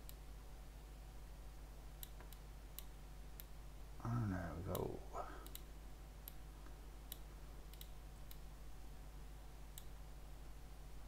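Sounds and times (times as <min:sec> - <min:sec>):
computer mouse clicks: 0:00.0 - 0:00.2, 0:02.0 - 0:03.6, 0:04.7 - 0:08.5, 0:09.7 - 0:10.0
low steady hum: 0:00.0 - 0:11.0.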